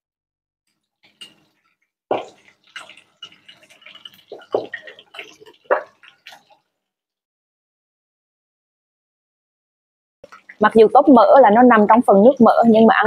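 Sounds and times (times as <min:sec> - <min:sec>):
liquid drips and plops: 0:00.7 - 0:07.0, 0:10.2 - 0:13.0.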